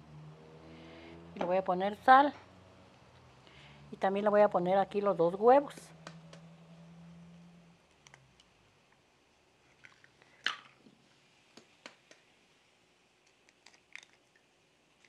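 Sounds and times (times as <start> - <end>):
eggshell cracking: 9.8 - 10.8, 13.2 - 15.0.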